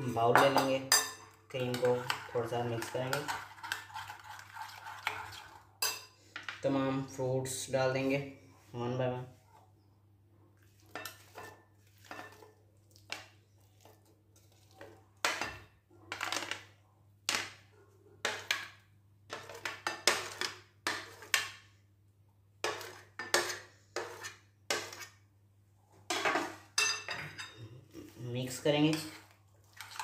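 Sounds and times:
utensil scraping ceramic tray: 0:01.6 - 0:05.6, 0:22.6 - 0:25.2.

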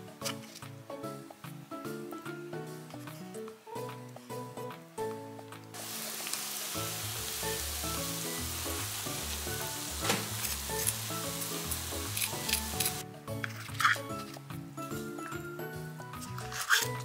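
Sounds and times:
fried chicken sizzling: 0:05.8 - 0:13.0
chopsticks tapping crispy food: 0:10.0 - 0:13.0.

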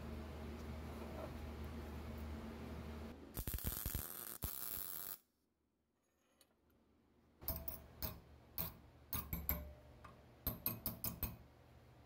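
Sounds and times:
welding arc hissing and crackling: 0:03.4 - 0:05.2
hammer tapping on steel: 0:07.4 - 0:11.4.

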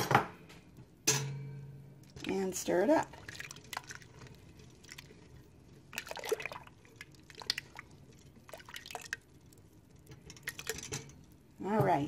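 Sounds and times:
milk sloshing as stirred: 0:02.0 - 0:11.7.

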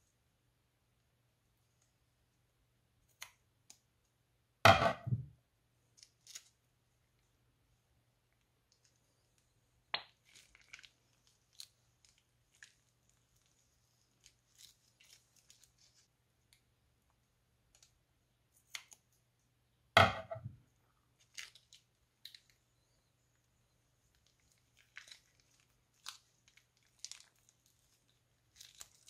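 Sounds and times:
crackling squelch of slime: 0:05.9 - 0:07.2, 0:08.2 - 0:19.3, 0:20.8 - 0:29.0
slime crackling and popping: 0:09.9 - 0:13.5, 0:24.2 - 0:29.0.

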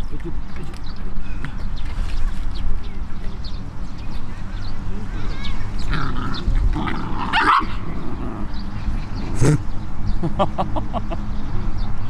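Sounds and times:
dogs barking and yipping: 0:05.8 - 0:09.7.

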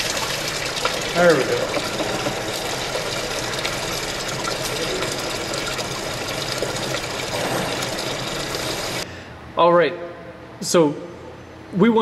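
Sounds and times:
liquid pouring into plastic pan: 0:00.0 - 0:09.0.

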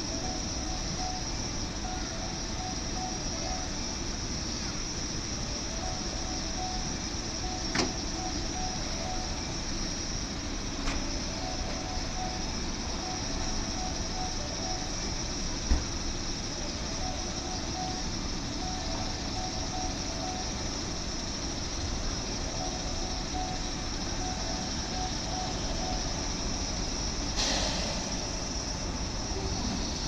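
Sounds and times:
electronic beeping: 0:00.0 - 0:04.7, 0:05.3 - 0:10.0, 0:10.6 - 0:15.4, 0:16.6 - 0:27.3
electric train pulling in: 0:00.0 - 0:30.0
burst of hiss: 0:27.3 - 0:28.8.

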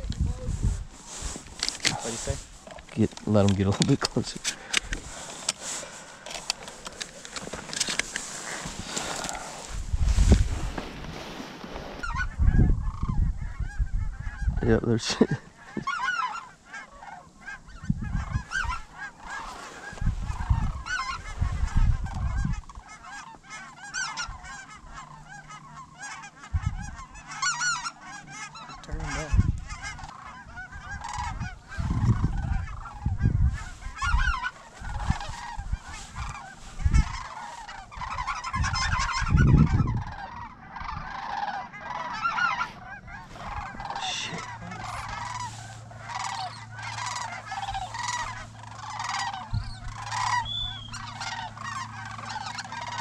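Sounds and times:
low microphone rumbles: 0:00.0 - 0:03.6, 0:08.5 - 0:14.7, 0:17.6 - 0:22.8, 0:26.5 - 0:27.1, 0:28.9 - 0:41.2, 0:42.4 - 0:52.4
geese honking: 0:00.0 - 0:53.0.

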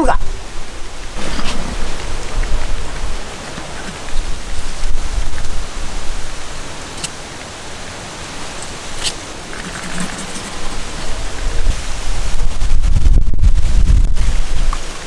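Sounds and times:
steady rushing noise: 0:00.0 - 0:15.0.

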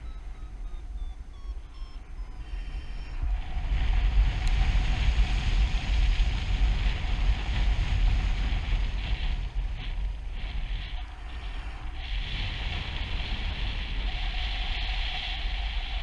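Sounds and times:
short electronic beeps: 0:00.0 - 0:03.2
wind buffeting microphone: 0:00.0 - 0:16.0.

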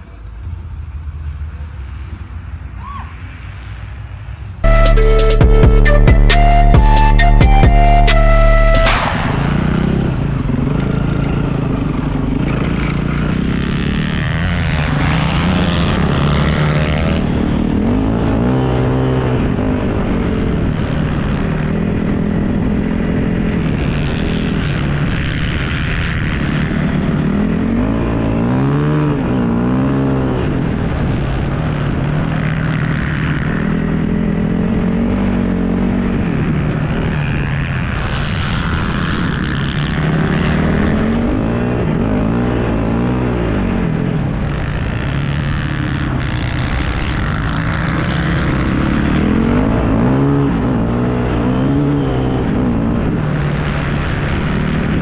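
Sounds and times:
dirt bike engine revving: 0:04.6 - 0:55.0
wind noise: 0:45.9 - 0:55.0.

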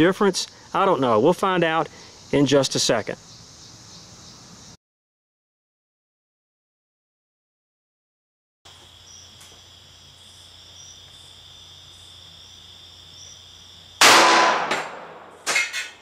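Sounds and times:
insects calling: 0:00.0 - 0:04.8, 0:08.7 - 0:16.0
pistol shot: 0:14.0 - 0:15.7.

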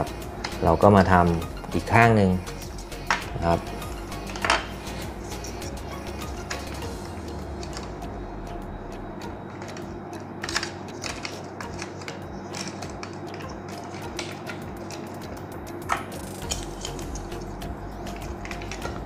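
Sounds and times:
steady background hum: 0:00.0 - 0:19.0
plastic toy parts clicking: 0:09.6 - 0:15.1.

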